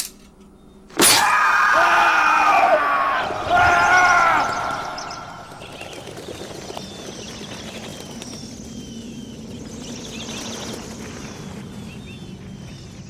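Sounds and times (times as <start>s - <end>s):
flock of small birds chirping: 3.2s - 13.0s.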